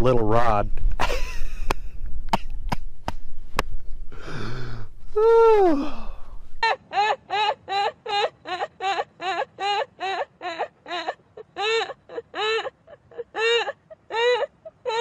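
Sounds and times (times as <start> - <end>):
low wind rumble: 0.0 - 6.6
woman laughing: 1.0 - 1.7
short falling vocal sound: 5.2 - 6.4.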